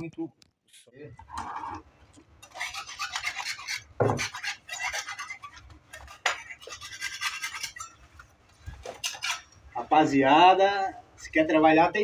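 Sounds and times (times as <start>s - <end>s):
metal scraper scraping tiles: 2.4s - 8.0s, 8.8s - 9.5s.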